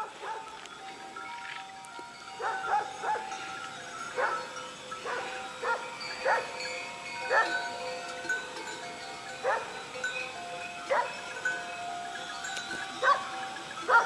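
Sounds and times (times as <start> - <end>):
dogs barking: 0.0 - 0.6, 2.4 - 3.5, 4.1 - 6.6, 7.2 - 7.7, 9.3 - 9.8, 10.8 - 11.3, 12.9 - 14.0
ringing bell tones: 0.7 - 14.0.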